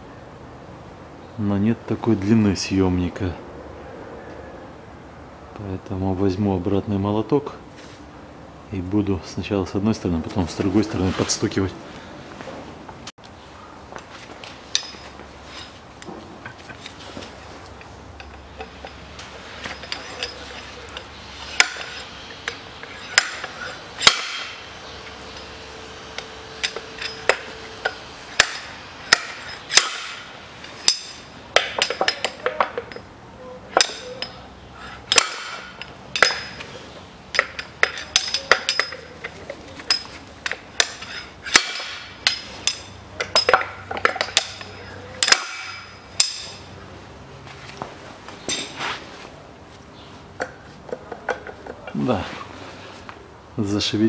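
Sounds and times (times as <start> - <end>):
slide hammer metal blows: 17.4 - 46.7.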